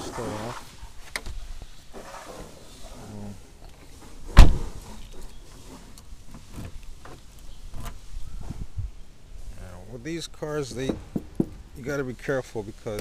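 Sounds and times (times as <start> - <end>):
car door slamming: 4.3 - 4.8.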